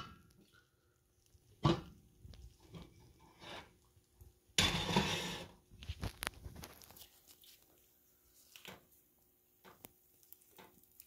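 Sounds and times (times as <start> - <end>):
fried fish crunching: 9.9 - 11.0.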